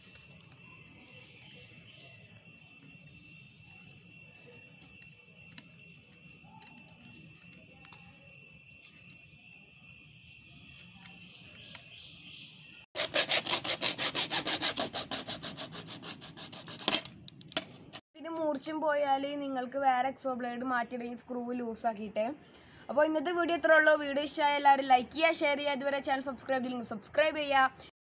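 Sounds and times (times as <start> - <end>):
hacksaw sawing plastic pipe: 13.0 - 17.1.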